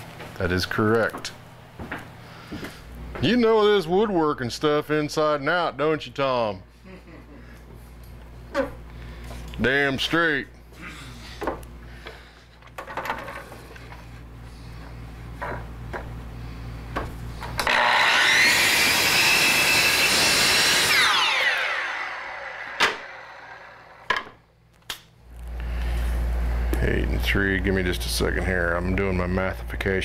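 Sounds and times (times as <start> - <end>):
miter saw motor whining: 17.6 - 24.0
saw blade cutting wood: 17.6 - 24.0.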